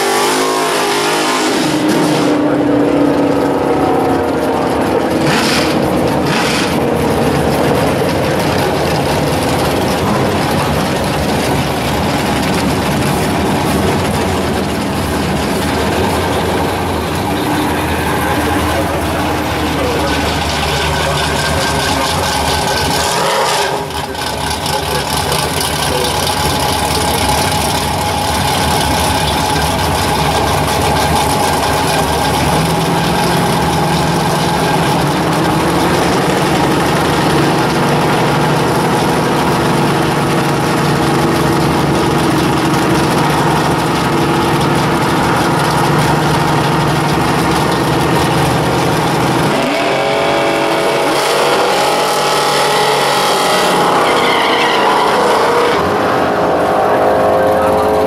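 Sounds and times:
car engine idling: 0.0s - 58.0s
car engine revving: 0.0s - 58.0s.

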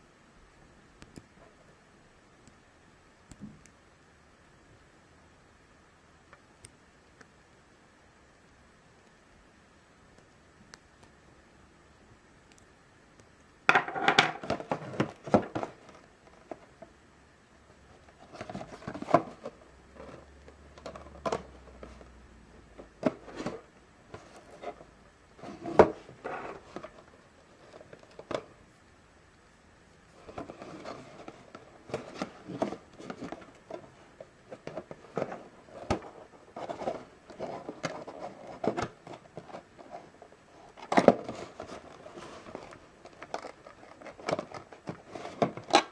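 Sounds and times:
cardboard box handled and opened: 14.4s - 16.6s, 18.2s - 22.1s, 22.8s - 28.5s, 30.2s - 45.9s.

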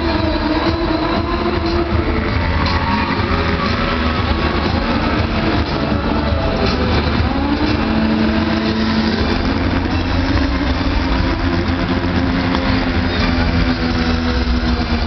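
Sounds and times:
motorcycle engine at high revs: 0.0s - 15.0s
rumble of other engines: 0.0s - 15.0s.

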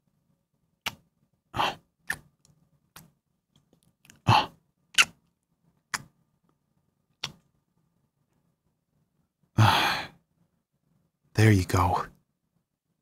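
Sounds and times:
wet kissing smacks: 0.8s - 1.0s, 2.0s - 2.3s, 4.9s - 5.2s, 5.9s - 6.1s, 7.2s - 7.4s.

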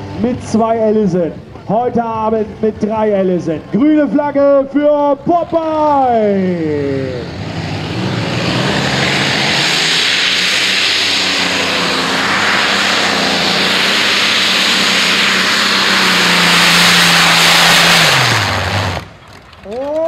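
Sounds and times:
tractor engines roaring: 0.0s - 20.0s.

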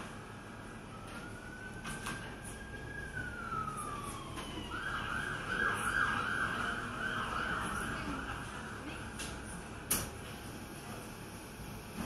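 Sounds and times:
emergency vehicle siren yelping: 0.0s - 8.8s.

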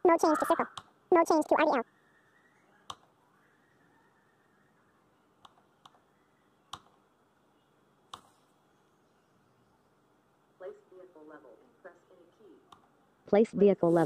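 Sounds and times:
computer mouse clicks: 2.8s - 3.1s, 5.4s - 6.0s, 6.7s - 7.0s, 8.1s - 8.4s.

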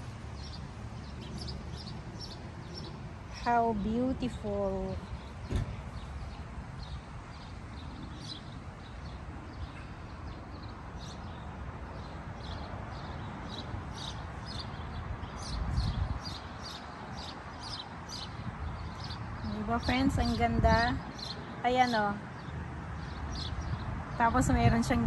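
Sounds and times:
small birds chirping: 0.0s - 25.0s
low rumble on microphone: 14.9s - 16.4s.

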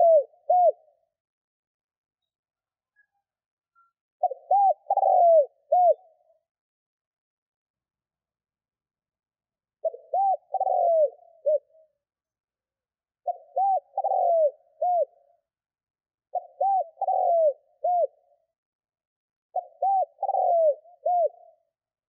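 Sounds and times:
dove cooing: 0.0s - 0.9s, 4.2s - 6.2s, 9.8s - 11.9s, 13.2s - 15.2s, 16.3s - 18.3s, 19.5s - 21.6s.

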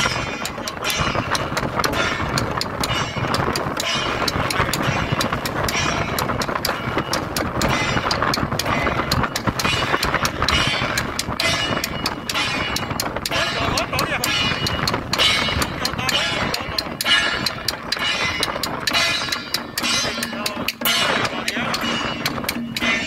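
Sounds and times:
drums beating: 0.0s - 23.0s
wind buffeting microphone: 0.0s - 23.0s
cymbals crashing: 7.7s - 23.0s.

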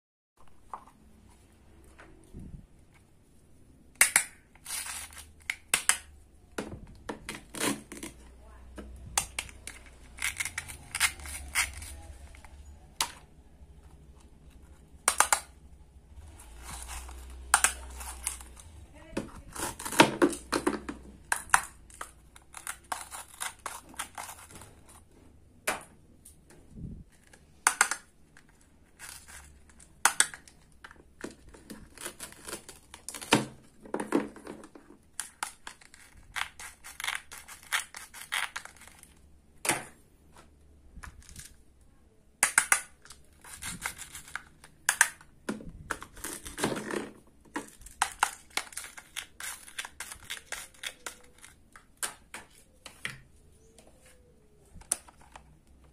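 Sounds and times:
plastic pieces clicking and tapping: 3.9s - 8.2s, 14.9s - 15.6s, 19.2s - 24.7s, 27.1s - 40.0s, 42.4s - 53.3s
hook-and-loop pads ripping: 9.2s - 12.7s.

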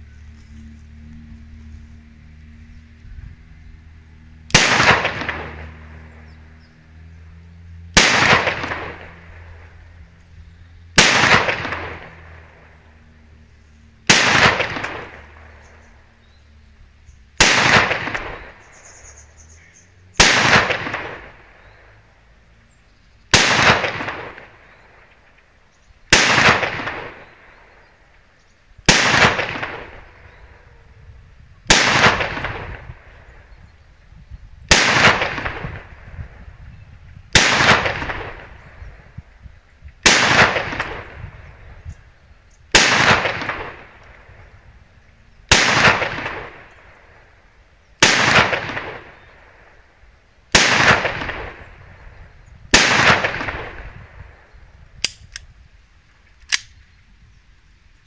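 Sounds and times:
blank pistol shots: 4.5s - 6.0s, 8.0s - 9.2s, 11.0s - 12.5s, 14.1s - 15.6s, 17.4s - 18.7s, 20.2s - 21.4s, 23.3s - 24.8s, 26.1s - 27.3s, 28.9s - 30.1s, 31.7s - 33.2s, 34.7s - 36.0s, 37.3s - 38.7s, 40.0s - 41.4s, 42.7s - 44.1s, 45.5s - 47.0s, 48.0s - 49.3s, 50.5s - 51.7s, 52.7s - 54.0s.

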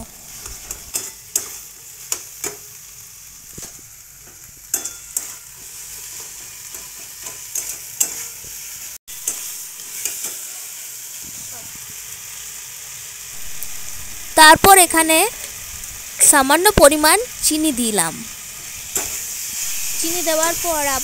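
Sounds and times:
food sizzling in oil: 0.0s - 21.0s
metal spatula scraping pan: 4.7s - 8.4s.

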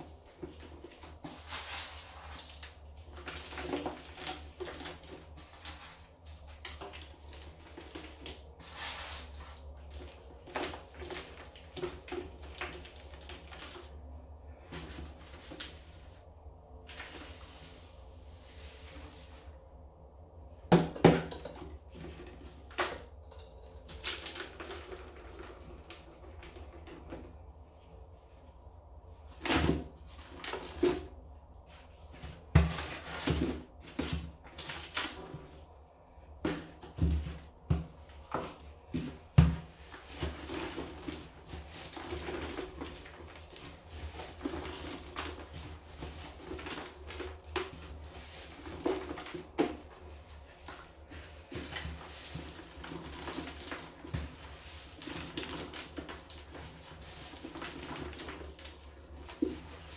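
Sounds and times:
scrubbing inside a can: 0.0s - 59.9s
garbage cans knocking in bathtub: 20.7s - 23.1s, 32.2s - 35.6s, 36.4s - 43.0s.

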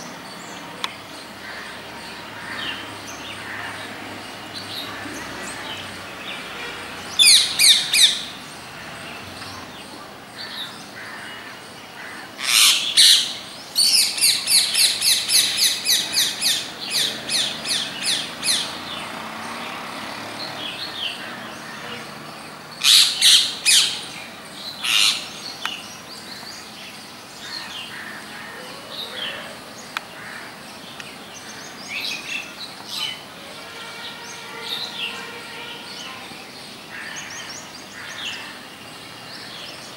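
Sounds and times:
parakeets screeching: 7.2s - 8.3s, 12.0s - 18.8s, 22.8s - 24.1s, 24.8s - 25.4s.

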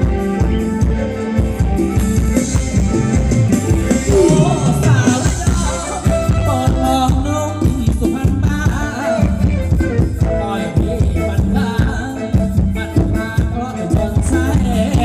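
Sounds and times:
live band dance music: 0.0s - 15.0s
steady drum beat: 1.7s - 8.7s
person singing melody: 4.0s - 9.2s.

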